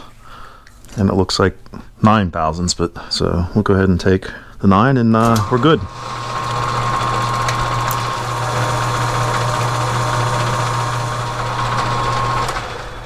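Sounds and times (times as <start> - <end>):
metal lathe humming: 5.2 - 13.0.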